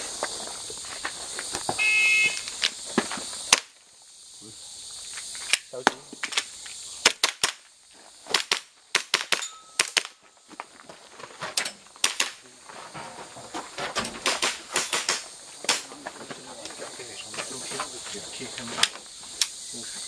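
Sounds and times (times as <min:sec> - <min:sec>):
airsoft pistol firing: 0:14.3 - 0:15.8.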